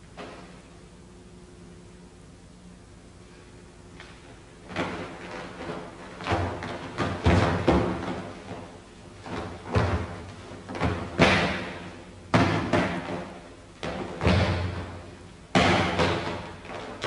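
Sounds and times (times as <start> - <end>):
feet stamping on floor: 4.0 - 17.0.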